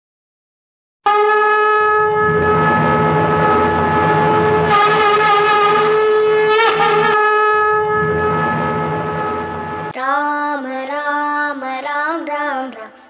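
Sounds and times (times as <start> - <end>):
horn-like wind instrument note: 1.0 - 9.9
devotional singing with music: 10.0 - 13.0.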